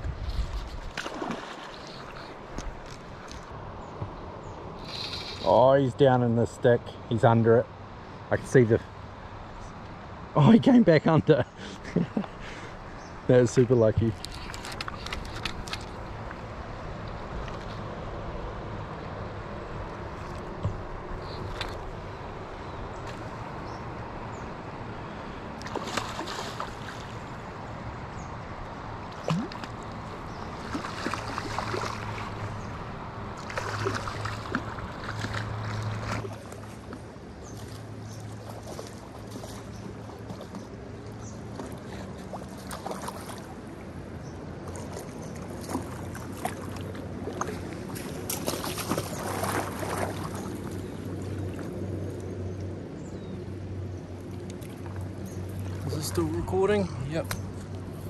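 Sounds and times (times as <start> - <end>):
shallow river water flowing: 0.0 - 58.0
fish splashing in water: 0.8 - 3.3, 25.6 - 27.4, 29.1 - 40.6, 44.6 - 51.8.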